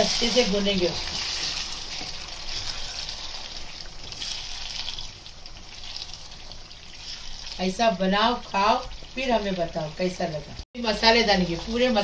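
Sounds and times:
spatula stirring in pan: 0.0s - 9.8s
chicken sizzling in oil: 0.0s - 12.0s.

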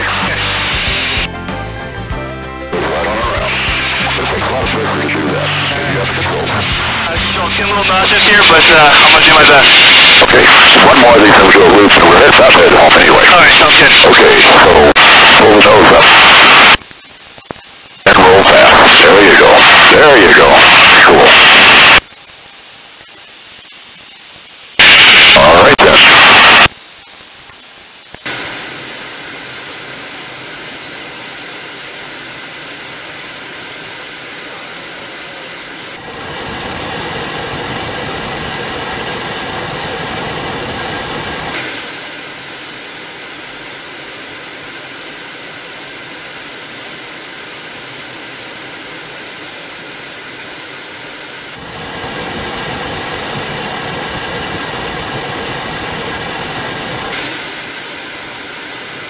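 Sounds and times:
burst of static: 0.0s - 1.3s, 2.7s - 32.2s, 32.8s - 45.0s, 51.4s - 59.0s
airflow noise in cockpit: 0.0s - 59.0s
jet engine whine: 2.8s - 23.0s, 28.2s - 59.0s.

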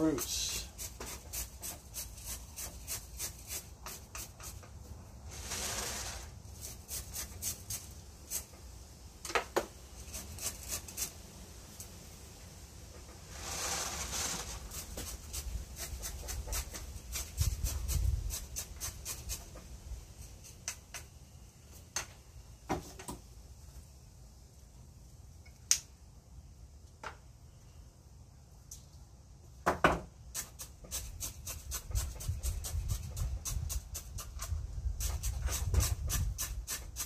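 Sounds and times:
chopstick scratching gritty soil: 0.0s - 4.8s, 5.4s - 8.6s, 10.0s - 12.0s, 13.3s - 21.1s, 30.3s - 37.0s.

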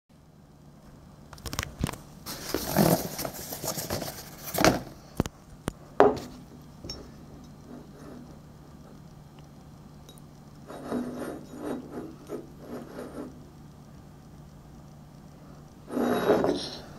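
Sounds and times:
cardboard rustling and scraping: 1.5s - 5.2s.

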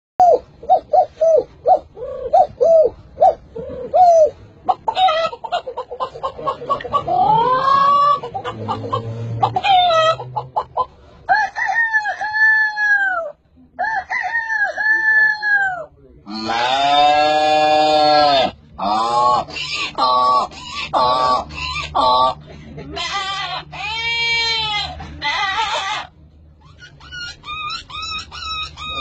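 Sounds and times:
man imitating chicken clucks: 3.8s - 10.9s, 17.5s - 23.9s, 27.2s - 29.0s
man imitating rooster crow: 11.3s - 19.3s.

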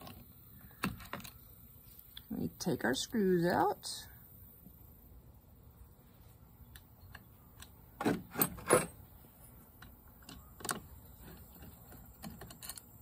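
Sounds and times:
screwdriver metal clicks and clinks: 11.9s - 13.0s.

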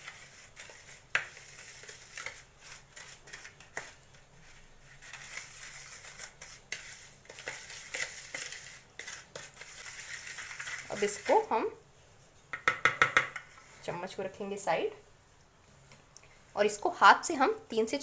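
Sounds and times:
spoon scraping glass bowl: 0.0s - 4.0s, 4.8s - 11.8s.

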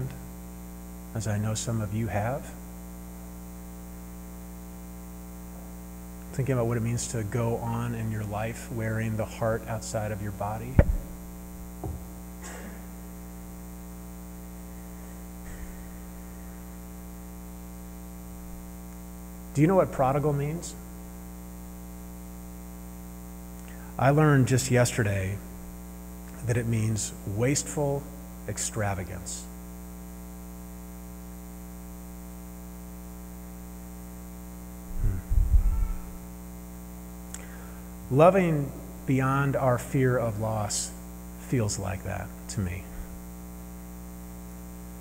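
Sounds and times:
electrical mains hum: 0.0s - 45.0s
low thump on microphone: 10.7s - 12.2s, 34.9s - 36.1s.

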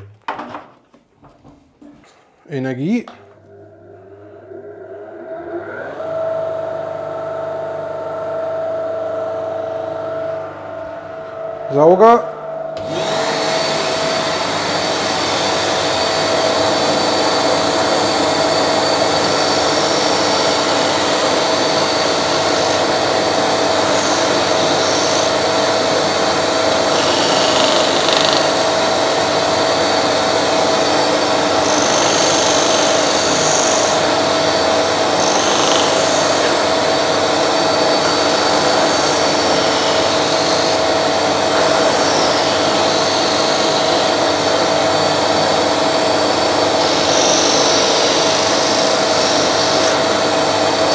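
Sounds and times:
shop vacuum airflow: 2.5s - 50.9s
disc sander running: 12.8s - 50.9s
wood rasping on sanding disc: 26.7s - 28.6s, 35.2s - 36.7s, 46.7s - 50.0s.

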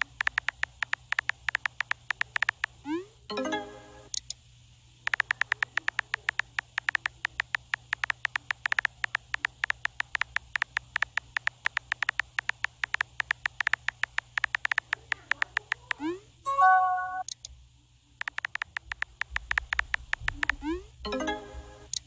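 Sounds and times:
phone keyboard typing clicks: 0.0s - 2.9s, 5.1s - 16.2s, 18.2s - 20.9s.

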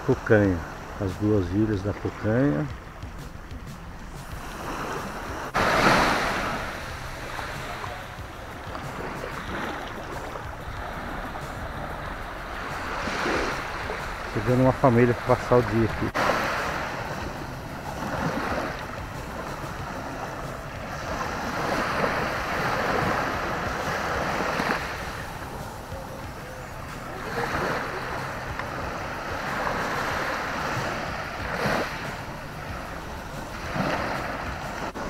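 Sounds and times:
waves washing up beach: 0.0s - 35.0s.

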